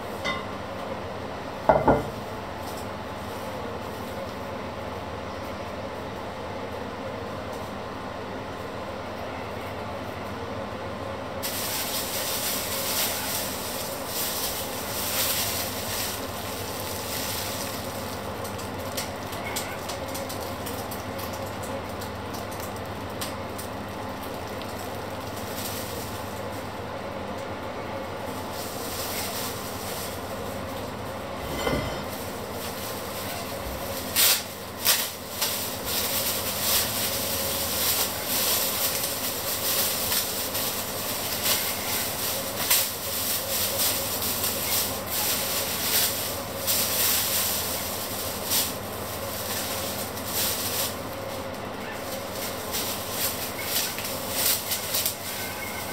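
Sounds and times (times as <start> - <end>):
plastic bag crinkling: 11.4 - 55.9
steady hum: 25.0 - 55.9.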